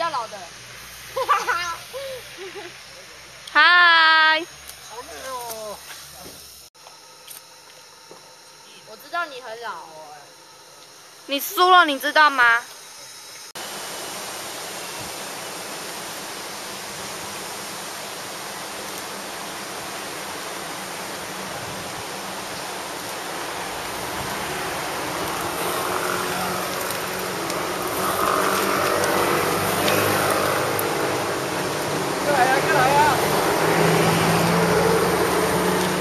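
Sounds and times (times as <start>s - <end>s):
bicycles passing: 0.0s - 6.7s, 14.1s - 36.0s
river rushing: 13.6s - 36.0s.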